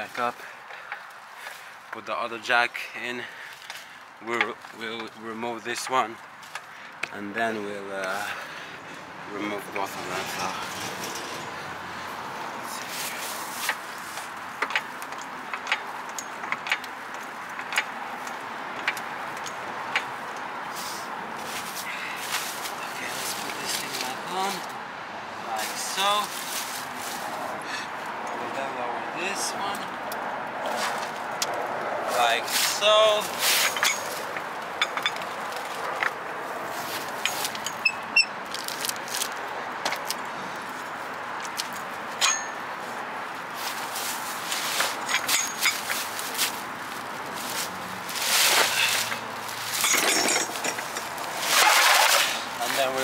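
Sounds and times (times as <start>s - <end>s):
car jack and tools clicking: 12.7s - 20.5s, 32.6s - 36.2s, 36.9s - 40.3s, 41.4s - 42.8s, 44.4s - 46.3s, 48.2s - 52.9s.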